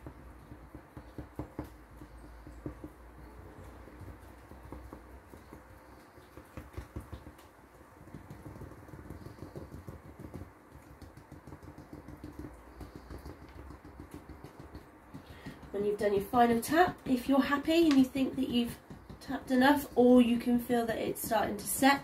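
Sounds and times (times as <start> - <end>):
moulds tapping on glass table: 0.0 - 15.8.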